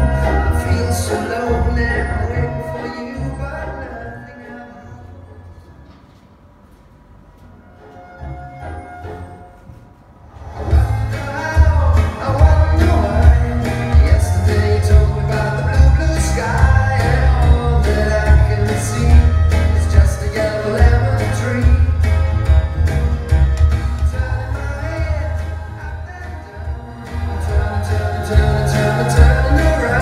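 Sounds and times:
song with heavy bass beat: 0:10.6 - 0:30.0.

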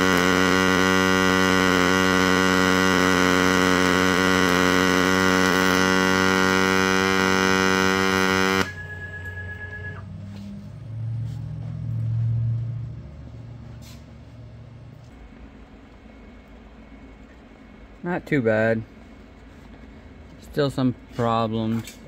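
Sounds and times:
faint whine: 0:00.0 - 0:22.0
welder electrical hum: 0:00.0 - 0:22.0
low rumble: 0:10.0 - 0:17.2.

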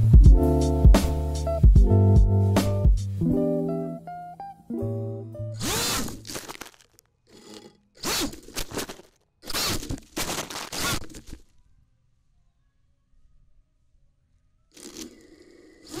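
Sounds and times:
quadcopter motors whining: 0:05.6 - 0:06.2, 0:15.0 - 0:16.0
leaves and twigs crunching: 0:05.6 - 0:11.5.

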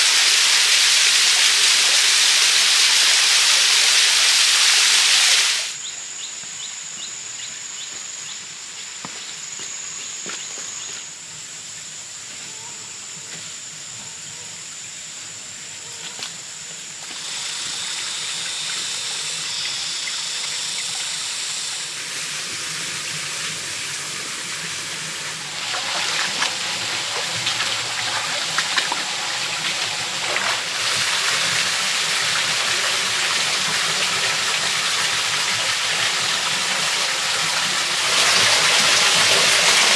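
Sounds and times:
small waterfall rushing: 0:00.0 - 0:05.8, 0:14.0 - 0:39.9
stream running over rocks: 0:00.0 - 0:05.8, 0:15.1 - 0:39.9
high-pitched drone: 0:17.2 - 0:22.0.

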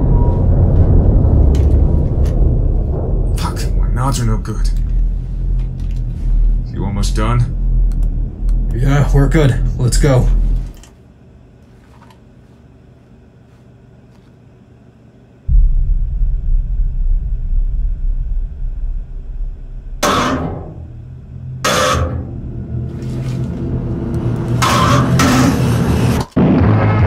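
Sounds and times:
sudden loud hits: 0:00.0 - 0:05.8, 0:15.5 - 0:22.9
deep rumbling drone: 0:00.0 - 0:10.8, 0:15.5 - 0:27.0.

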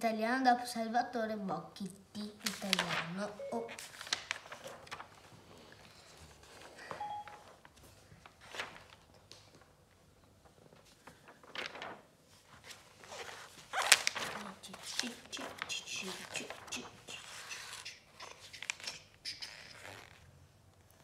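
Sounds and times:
paper rustling and crinkling: 0:02.3 - 0:20.3.

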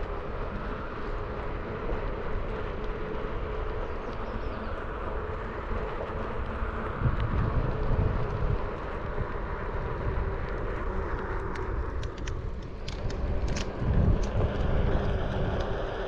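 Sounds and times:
electric board rolling rumble: 0:00.0 - 0:16.0
faint motor hum: 0:00.0 - 0:16.0
light clicks: 0:10.4 - 0:15.9.

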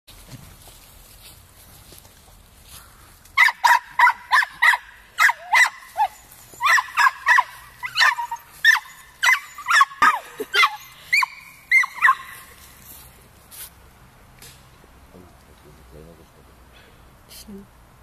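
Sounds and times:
dog barking high-pitched: 0:03.4 - 0:12.4.

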